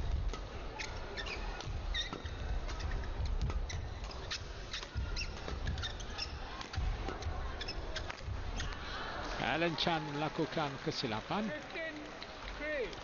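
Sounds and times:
shoes squeaking on court: 0.3 - 8.8.

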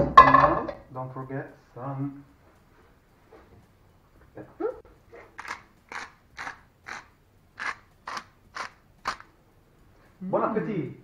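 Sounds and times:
pepper mill grinding: 5.4 - 9.3.

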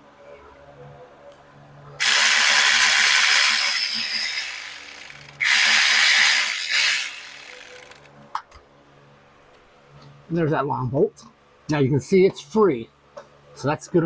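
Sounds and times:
power tool spinning socket: 2.0 - 8.1.

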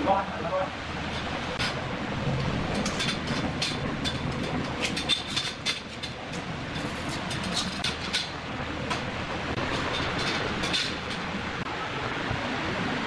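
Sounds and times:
metal rails clicking and clanking: 2.7 - 11.6.

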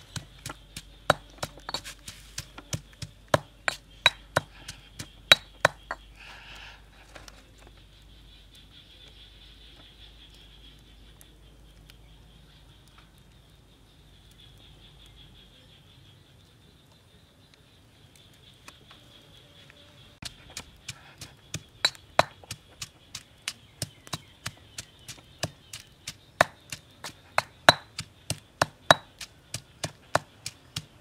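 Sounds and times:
stone pestle pounding in mortar: 0.0 - 6.0, 20.2 - 31.0.

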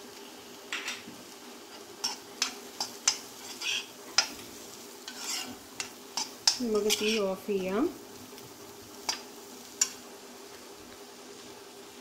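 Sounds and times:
faint frying sizzle: 0.0 - 12.0
spoon scraping iron pan: 1.7 - 7.4.

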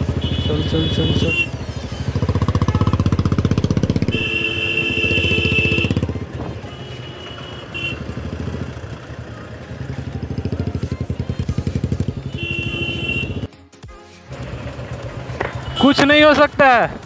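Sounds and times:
horn honking: 0.0 - 9.1, 11.8 - 13.5, 14.3 - 16.4
motorcycle engine running: 0.0 - 13.5, 14.3 - 17.0.

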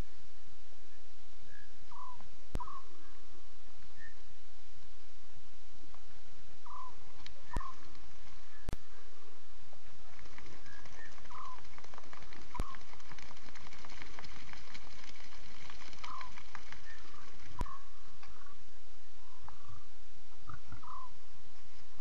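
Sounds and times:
steady hiss with faint clicks: 3.6 - 6.5, 7.1 - 8.8, 9.7 - 18.4.

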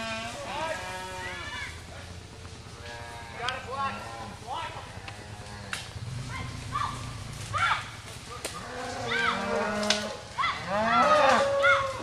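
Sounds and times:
cattle mooing and bawling: 8.6 - 12.0.

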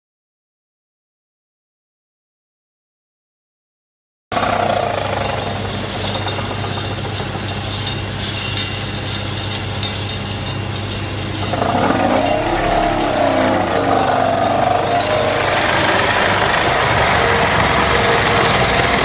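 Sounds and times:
piling rig machine hum: 4.4 - 19.0
wavering whine: 10.8 - 19.0.

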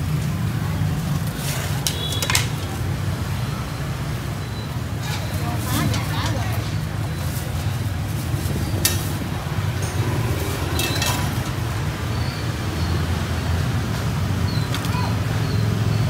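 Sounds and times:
low market background hum: 0.0 - 16.0
utensils clicking and clinking: 1.2 - 2.8, 8.8 - 11.6.

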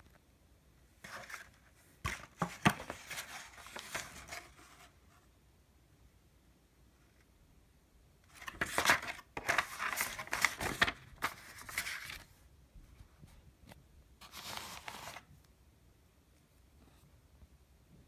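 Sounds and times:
paper rustling and crackling: 1.0 - 4.9, 8.3 - 12.4, 14.2 - 15.3.

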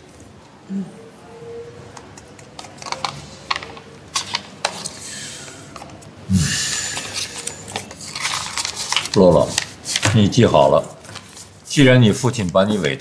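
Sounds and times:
paper rustling and shuffling: 2.4 - 5.0, 6.8 - 13.0.

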